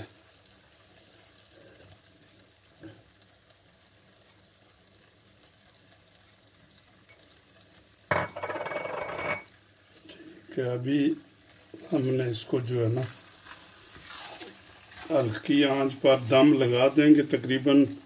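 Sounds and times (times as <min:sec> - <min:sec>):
faint sizzle of simmering food: 0:00.0 - 0:18.0
wooden spatula stirring in a pan: 0:09.7 - 0:18.0
spatula scraping against pan: 0:13.0 - 0:16.5.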